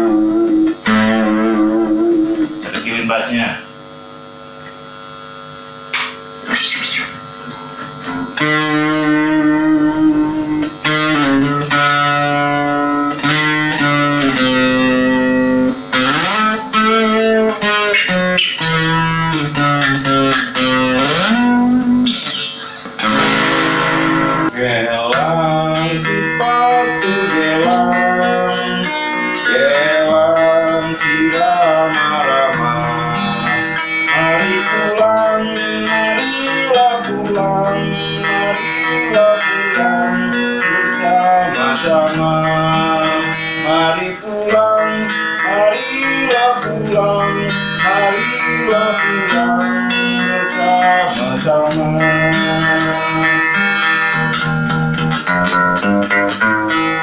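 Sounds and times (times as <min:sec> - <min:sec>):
distorted electric guitar melody: 0:00.0 - 0:57.0.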